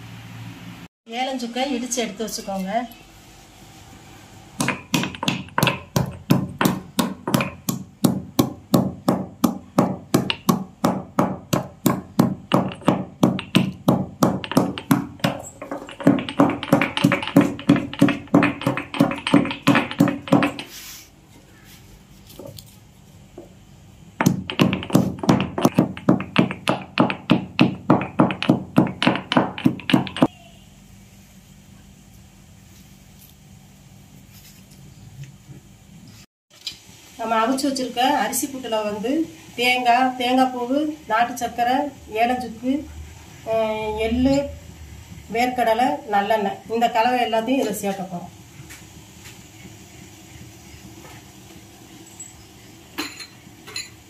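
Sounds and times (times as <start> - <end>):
stone pestle pounding in mortar: 4.6 - 20.7, 24.2 - 30.3.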